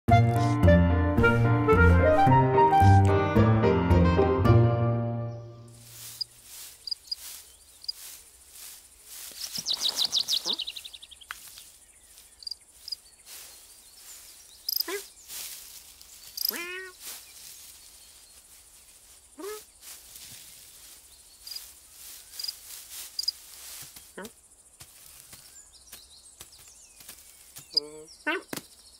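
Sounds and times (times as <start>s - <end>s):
faint high insect hiss: 5.7s - 28.9s
small birds chirping: 5.7s - 28.9s
fast falling bird trill: 9.3s - 11.2s
short pitched bird calls: 9.4s - 11.5s.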